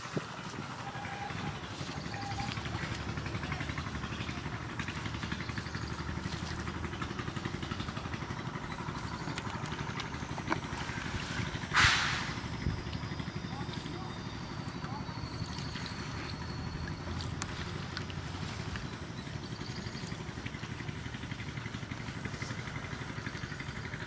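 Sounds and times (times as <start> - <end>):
small engine running: 0.0 - 24.0
short loud burst of noise: 11.7 - 12.5.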